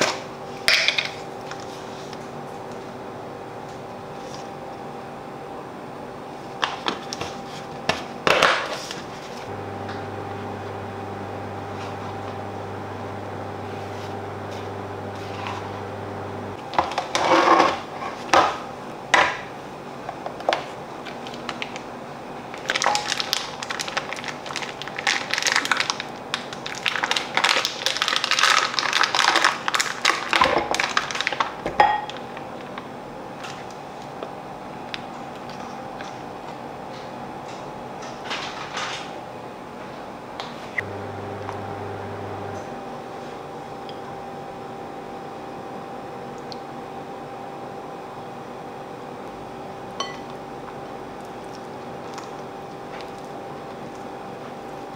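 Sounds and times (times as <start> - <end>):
wrapper crackling and crinkling: 22.5 - 31.6.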